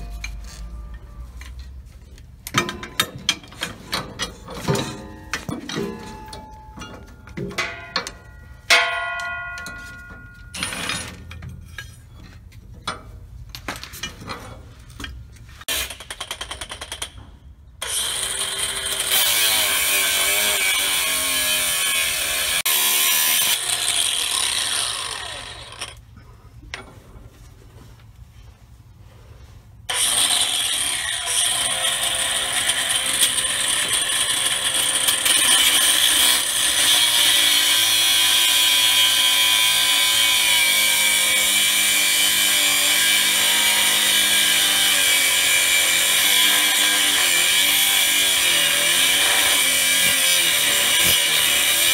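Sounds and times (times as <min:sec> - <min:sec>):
angle grinder cutting steel: 0:17.8 - 0:26.0, 0:29.9 - 0:51.9.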